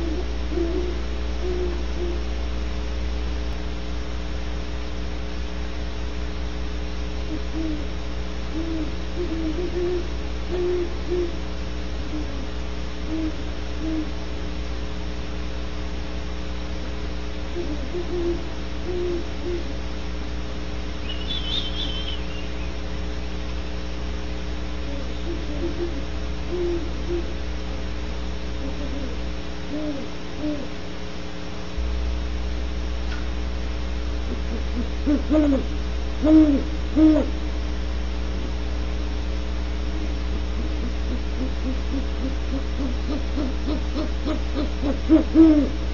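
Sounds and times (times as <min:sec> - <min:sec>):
owls hooting: 0:00.0 - 0:02.3, 0:07.3 - 0:07.9, 0:08.5 - 0:11.4, 0:13.1 - 0:14.2, 0:17.5 - 0:19.8, 0:21.0 - 0:22.8, 0:24.9 - 0:27.4, 0:28.6 - 0:30.8, 0:34.3 - 0:37.4, 0:40.0 - 0:45.8
electrical hum: 0:00.0 - 0:45.9.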